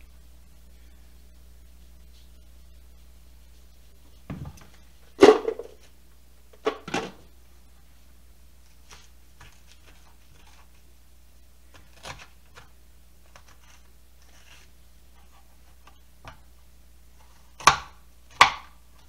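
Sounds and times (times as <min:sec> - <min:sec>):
scraping squash pulp: 0:08.7 - 0:10.9, 0:11.7 - 0:16.0.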